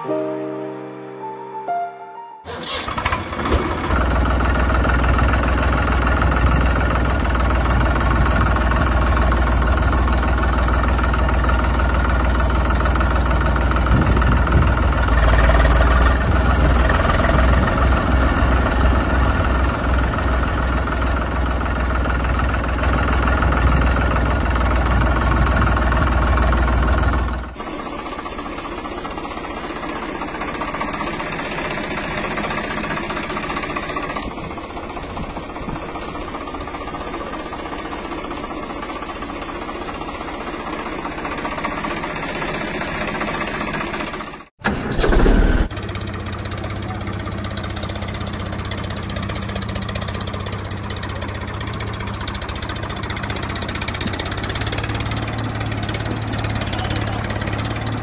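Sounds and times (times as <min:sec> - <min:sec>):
tractor engine rumbling: 0:02.4 - 0:58.0.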